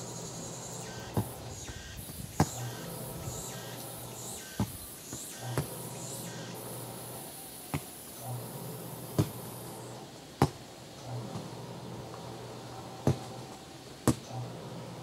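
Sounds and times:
high steady buzz: 0:00.0 - 0:10.3
ball kicked thumps: 0:01.1 - 0:01.4, 0:02.1 - 0:02.8, 0:04.6 - 0:05.8, 0:07.7 - 0:08.0, 0:09.1 - 0:09.4, 0:10.4 - 0:10.6, 0:13.0 - 0:13.3, 0:14.0 - 0:14.2.

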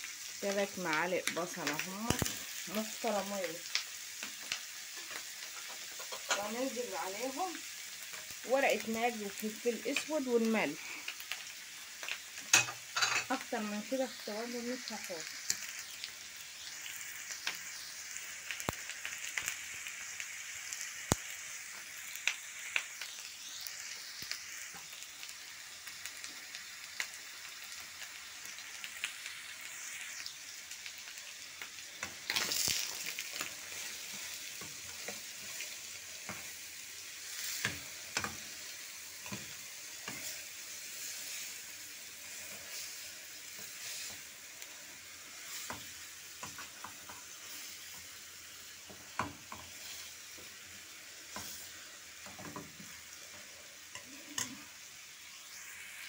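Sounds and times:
food sizzling in frying pan: 0:00.0 - 0:56.0
spoon scraping a pan: 0:04.9 - 0:06.6, 0:12.5 - 0:13.4, 0:39.2 - 0:40.4.

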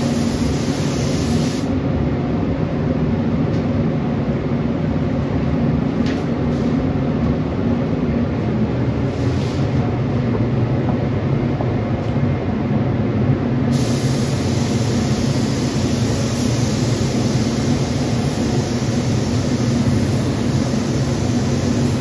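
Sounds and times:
spray gun air hiss: 0:00.0 - 0:01.8, 0:09.0 - 0:09.8, 0:13.7 - 0:22.0
low machinery hum: 0:00.0 - 0:22.0.

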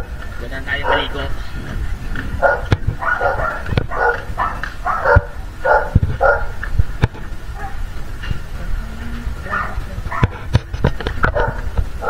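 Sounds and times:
dog barking: 0:00.7 - 0:01.3, 0:02.4 - 0:06.6, 0:07.6 - 0:07.9, 0:09.5 - 0:10.4, 0:11.2 - 0:11.7.

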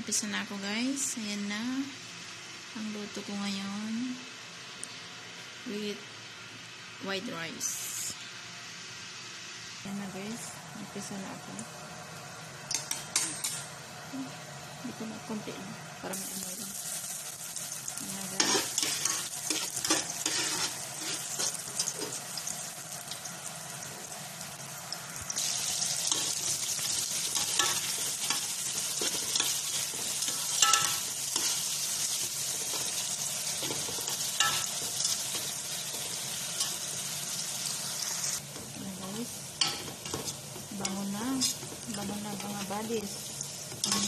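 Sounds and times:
onion frying in oil sizzling: 0:00.0 - 0:44.0
stirring scrapes and knocks: 0:18.4 - 0:22.2.

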